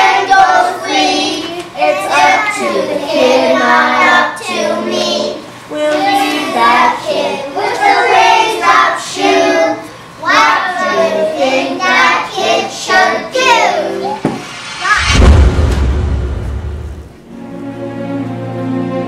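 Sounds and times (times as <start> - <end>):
child singing: 0.0 - 14.3.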